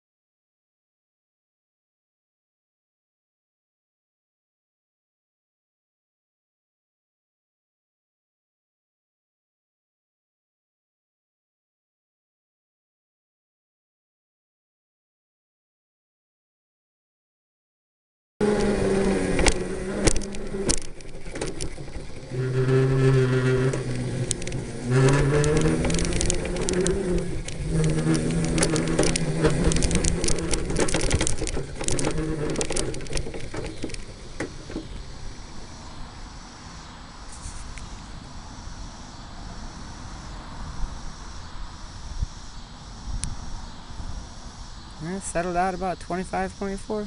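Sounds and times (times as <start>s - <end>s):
kart clicks and knocks: 18.4s - 35.1s
electric go-kart motor whining: 18.4s - 47.0s
faint steady hiss: 18.4s - 47.0s.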